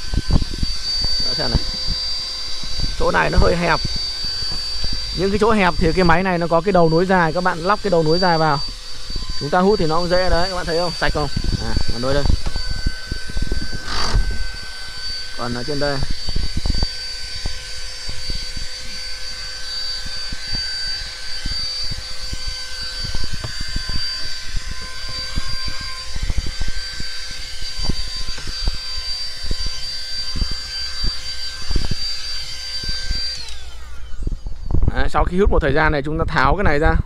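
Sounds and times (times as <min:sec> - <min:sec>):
handheld vacuum cleaner running: 0:00.0 - 0:35.2.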